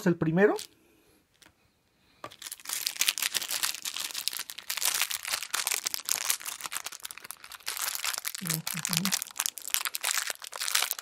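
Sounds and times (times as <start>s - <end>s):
plastic sachet crinkling: 0.5s - 1.5s, 2.2s - 11.0s.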